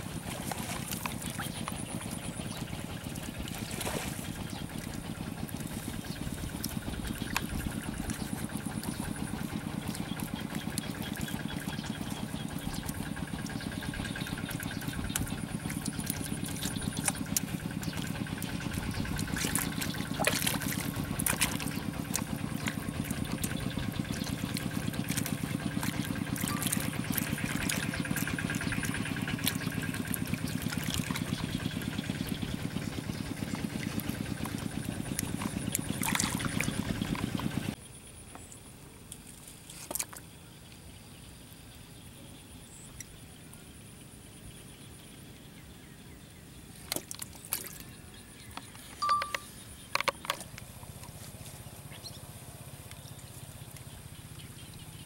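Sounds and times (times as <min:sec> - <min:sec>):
hands packing mud: 0:00.0 - 0:37.8
low engine drone: 0:00.0 - 0:39.0, 0:39.9 - 0:55.0.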